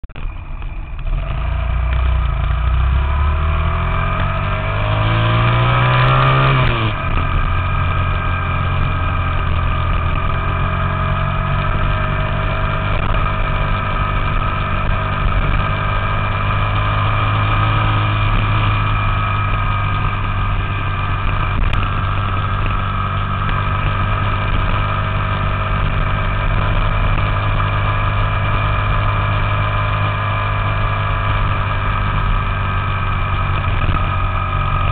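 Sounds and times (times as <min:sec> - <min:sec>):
minibike engine running: 0:00.2 - 0:34.9.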